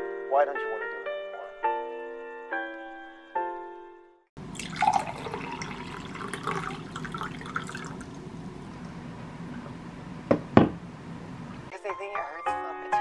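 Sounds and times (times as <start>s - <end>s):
water pouring into glass: 4.4s - 8.2s.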